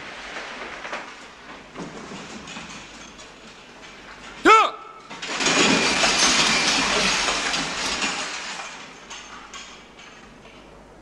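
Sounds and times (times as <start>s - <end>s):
metal bed frames creaking and rattling: 0.0s - 10.9s
rifles clinking: 2.2s - 10.8s.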